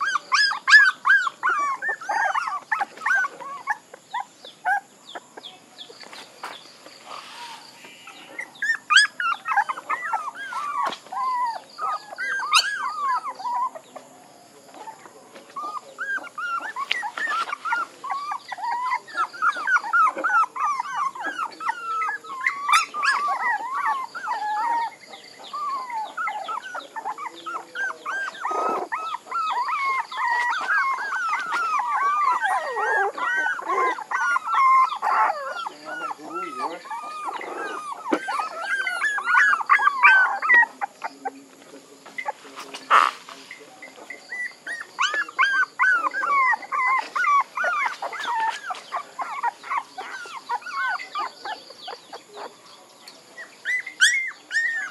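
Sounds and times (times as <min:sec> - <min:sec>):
puppies whining and yelping: 0:00.0 - 0:05.6, 0:07.0 - 0:43.2, 0:43.8 - 0:52.6, 0:53.3 - 0:54.9.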